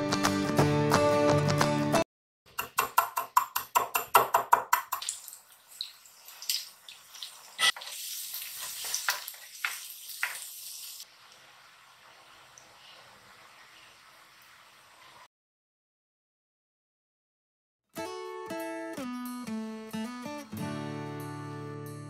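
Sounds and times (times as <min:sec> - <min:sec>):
slices frying in hot oil: 0:04.9 - 0:15.3.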